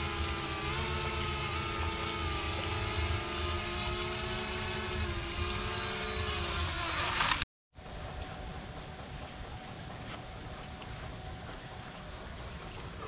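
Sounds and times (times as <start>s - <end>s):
drone propellers whining: 0.0s - 7.4s.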